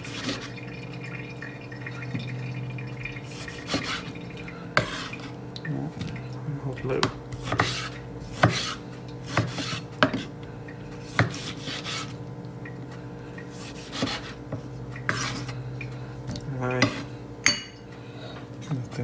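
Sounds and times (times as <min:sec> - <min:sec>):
steady low hum: 0:00.0 - 0:19.0
knife scraping board: 0:03.3 - 0:04.1, 0:04.8 - 0:05.4, 0:07.3 - 0:10.3, 0:11.0 - 0:12.2, 0:13.5 - 0:15.6.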